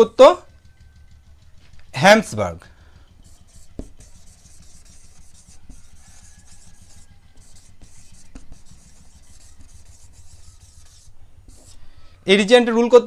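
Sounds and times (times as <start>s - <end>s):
low steady hum: 0.0s - 13.0s
marker pen writing on whiteboard: 3.2s - 11.9s.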